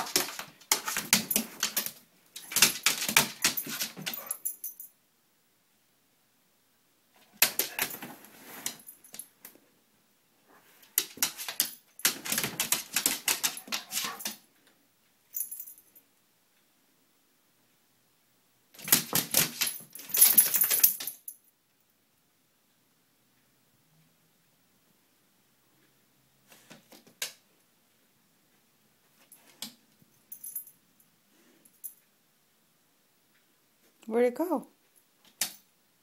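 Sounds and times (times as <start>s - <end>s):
dog's claws clicking on hardwood: 0.0s - 4.4s, 10.9s - 14.4s
collar tags jingling: 0.0s - 4.9s, 11.1s - 14.4s, 15.3s - 16.0s, 18.8s - 21.5s.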